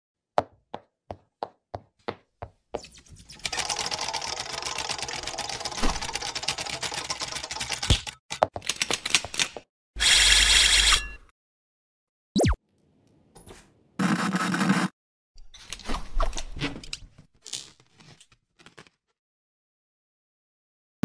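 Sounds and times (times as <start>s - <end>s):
fast typing clatter: 3.4s - 9.5s.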